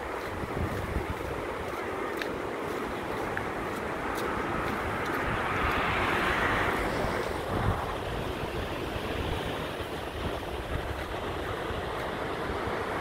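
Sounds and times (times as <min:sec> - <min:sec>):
outdoor noise: 0:00.0 - 0:13.0
wind buffeting microphone: 0:00.0 - 0:13.0.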